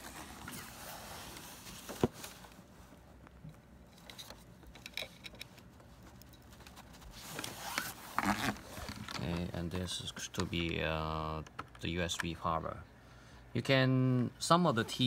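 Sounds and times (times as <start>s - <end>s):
cable connector rubbing and fumbling: 3.2s - 12.4s.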